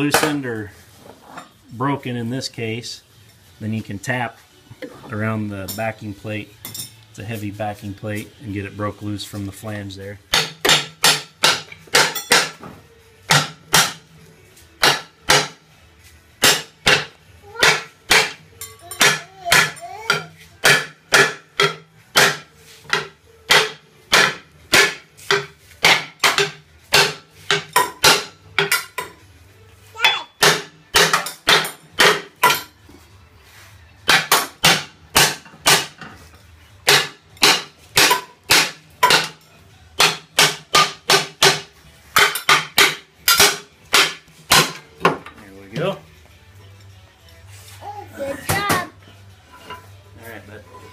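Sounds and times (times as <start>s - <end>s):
hammer striking metal plate: 10.3s - 12.6s, 36.8s - 39.4s, 40.0s - 44.8s.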